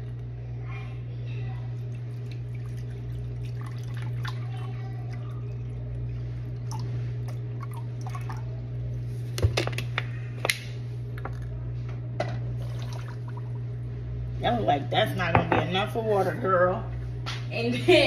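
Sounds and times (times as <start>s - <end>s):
water pouring into glass cup: 1.8s - 8.5s, 12.6s - 13.5s.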